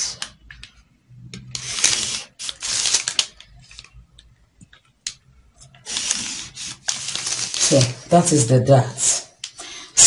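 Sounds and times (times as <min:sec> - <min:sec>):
paper rustling: 0:01.5 - 0:04.1, 0:05.6 - 0:08.1
marker scratching on paper: 0:05.8 - 0:07.9.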